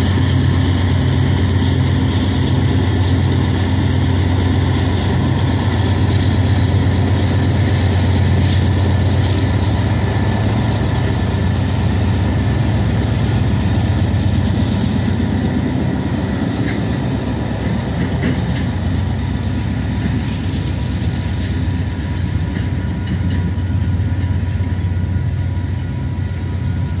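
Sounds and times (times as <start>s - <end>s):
locomotive engine rumble: 0.0s - 27.0s.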